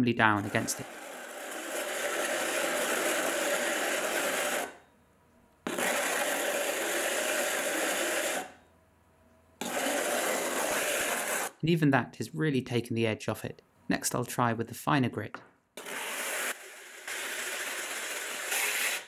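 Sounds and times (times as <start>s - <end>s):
mug grinding on grinding disc: 0.4s - 4.8s, 5.6s - 8.6s, 9.6s - 11.6s, 15.8s - 19.0s.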